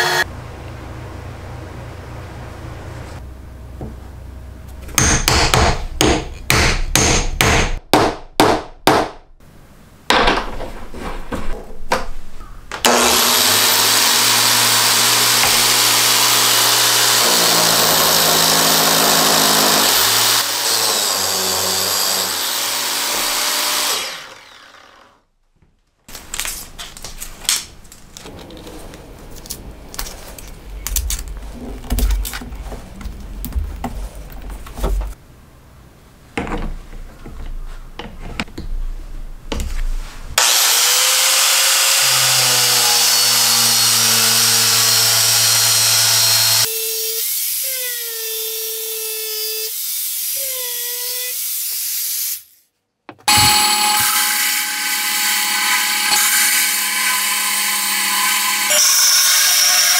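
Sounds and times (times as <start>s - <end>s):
angle grinder running: 0.0s - 0.3s, 12.9s - 25.2s, 40.4s - 46.7s, 53.3s - 59.9s.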